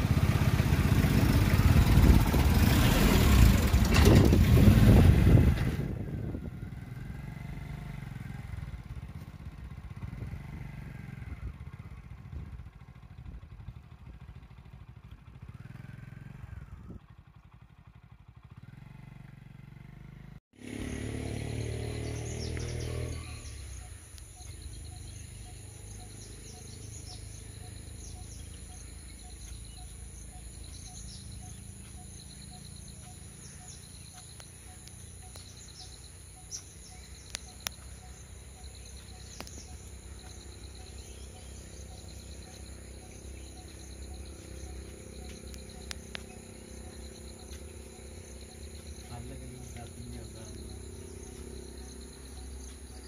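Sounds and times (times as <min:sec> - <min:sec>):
insects chirring: 0:20.8 - 0:53.0
sharp clicks: 0:37.2 - 0:38.0, 0:39.3 - 0:39.8, 0:45.3 - 0:46.4.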